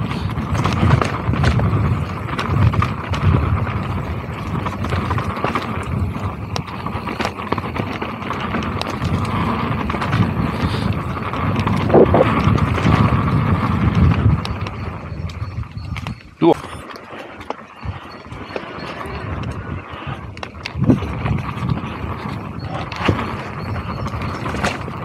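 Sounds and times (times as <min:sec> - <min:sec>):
bike rattling over bumps: 0:00.0 - 0:25.0
bike tyres rolling over dirt: 0:00.0 - 0:25.0
low rumble: 0:11.7 - 0:12.5.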